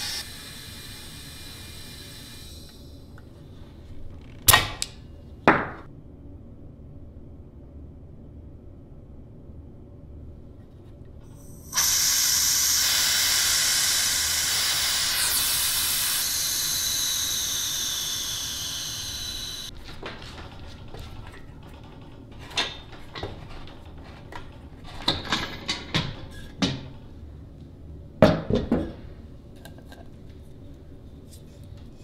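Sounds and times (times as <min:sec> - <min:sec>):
compressed air hissing: 0:00.0 - 0:03.1, 0:11.3 - 0:19.7.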